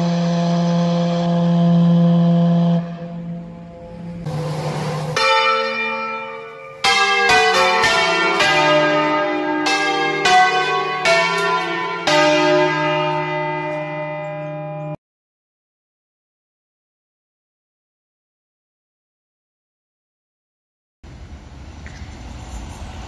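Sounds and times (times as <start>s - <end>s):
church bells ringing: 0.0s - 15.0s.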